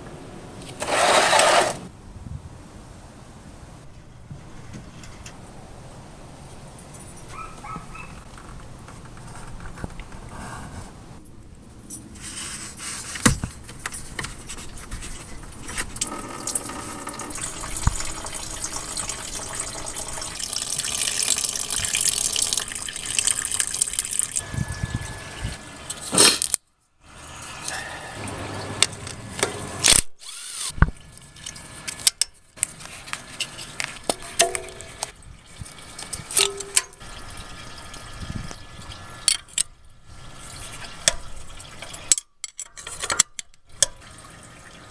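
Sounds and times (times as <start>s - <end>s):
coolant splashing stream: 16.0s - 24.4s.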